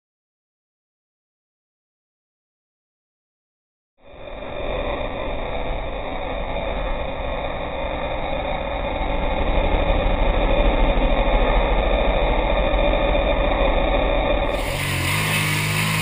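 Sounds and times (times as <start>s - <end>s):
utility vehicle engine on sand: 4.1s - 16.0s.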